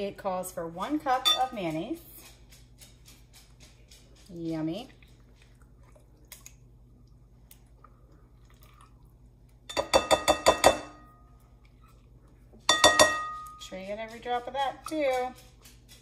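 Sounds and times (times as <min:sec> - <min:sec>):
metal cup clinking on glass bowl: 0:01.2 - 0:01.6, 0:09.7 - 0:11.0, 0:12.7 - 0:13.7.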